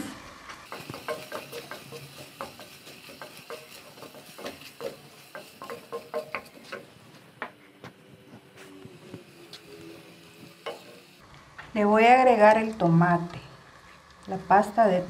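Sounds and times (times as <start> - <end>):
light frying sizzle: 0.3 - 7.4, 8.5 - 15.0
spatula scraping metal pot: 0.6 - 6.9.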